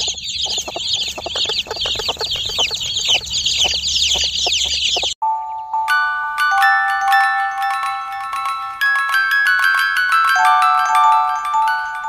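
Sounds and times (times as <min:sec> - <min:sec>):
hen clucking low: 0:00.0 - 0:05.1
chicks peeping: 0:00.0 - 0:05.6.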